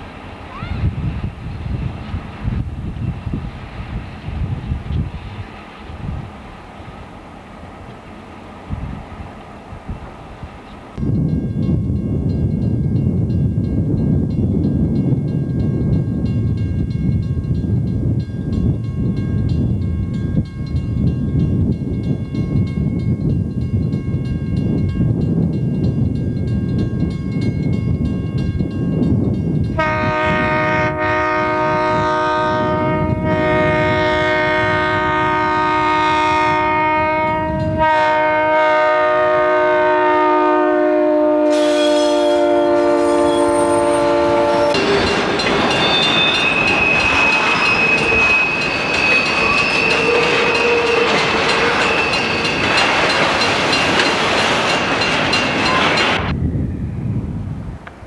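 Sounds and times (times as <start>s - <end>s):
diesel locomotive engine rumble: 0.0s - 58.0s
locomotive air horn blast: 29.8s - 45.2s.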